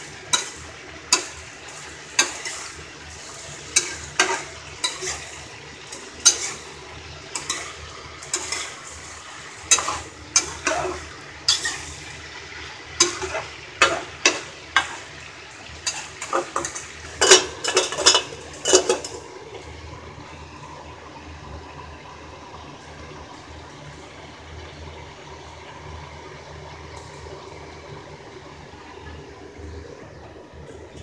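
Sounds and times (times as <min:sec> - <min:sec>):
metal spatula scraping pan: 0:00.0 - 0:12.2, 0:13.0 - 0:15.1, 0:15.8 - 0:19.2
vegetables sizzling in pan: 0:00.0 - 0:30.7
metal lid clanking: 0:00.3 - 0:02.7, 0:03.7 - 0:06.6, 0:07.3 - 0:08.8, 0:09.6 - 0:12.0, 0:13.0 - 0:15.1, 0:15.8 - 0:19.3.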